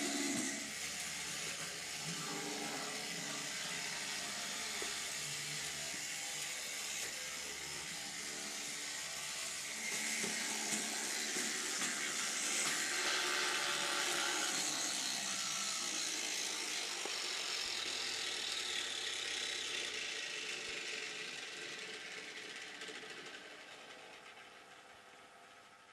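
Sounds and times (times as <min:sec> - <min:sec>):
small electric motors whirring: 0:00.0 - 0:24.8
model wheels rattling on track: 0:00.0 - 0:25.8.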